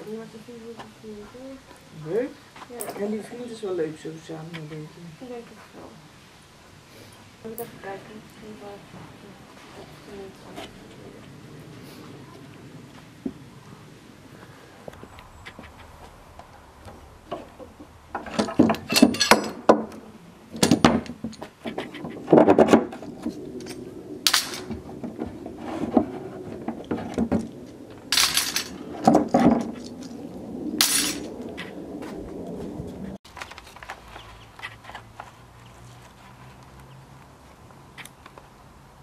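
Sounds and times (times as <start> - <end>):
metal clamps clinking and clanking: 18.2 - 19.7.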